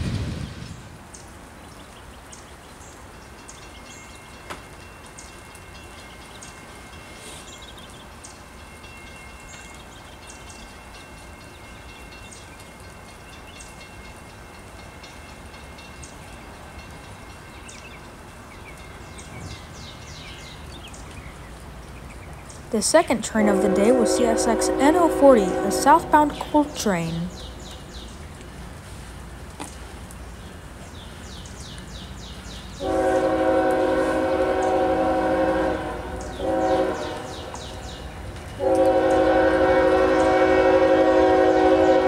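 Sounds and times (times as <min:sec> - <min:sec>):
distant freight train: 0:00.0 - 0:42.0
light rain dripping: 0:00.0 - 0:42.0.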